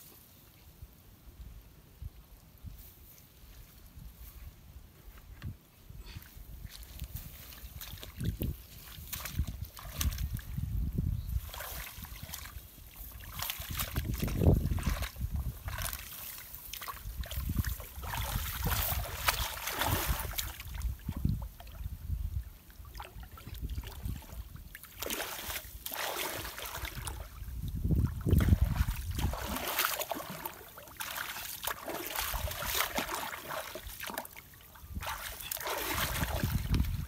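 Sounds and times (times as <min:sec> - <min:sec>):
water sloshing and splashing: 0:06.6 - 0:10.6, 0:11.3 - 0:21.9, 0:22.7 - 0:37.0.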